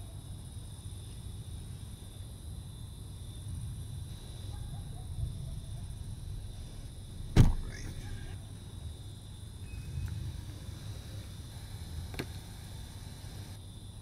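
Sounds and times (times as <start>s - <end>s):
car engine rumbling: 5.1s - 13.6s
car door slamming: 7.3s - 7.8s.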